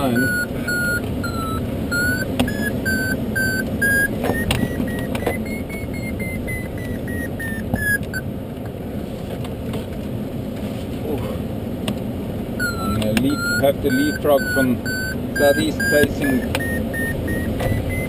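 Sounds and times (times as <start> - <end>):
variometer beeping: 0.0 - 8.3, 12.6 - 18.0.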